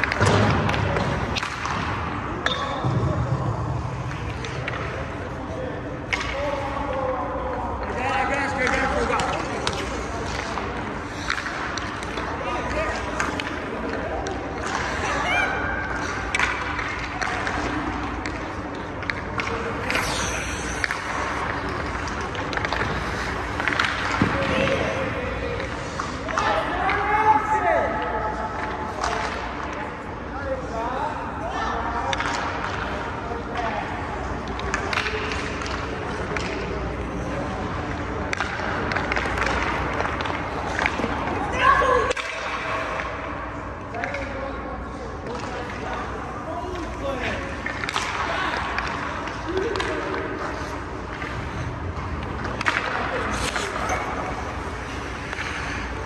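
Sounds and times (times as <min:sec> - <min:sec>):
indoor rink hum: 0:00.0 - 0:56.0
skate blades scraping ice: 0:18.4 - 0:24.9, 0:50.3 - 0:56.0.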